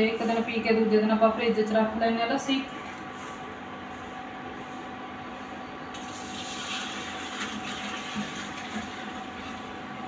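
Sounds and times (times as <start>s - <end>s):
milk pouring into a pot: 6.0s - 9.9s.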